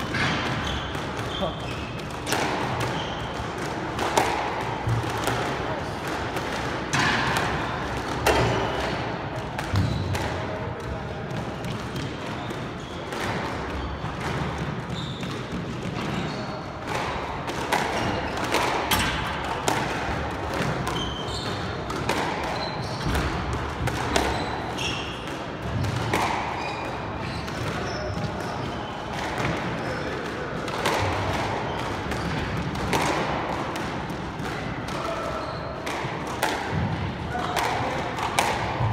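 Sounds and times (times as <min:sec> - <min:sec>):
sneakers squeaking on hardwood: 0:00.0 - 0:03.6, 0:09.6 - 0:10.3, 0:11.5 - 0:16.7, 0:20.6 - 0:29.1, 0:35.0 - 0:35.8
squash ball smacking racquet and walls: 0:00.0 - 0:38.9.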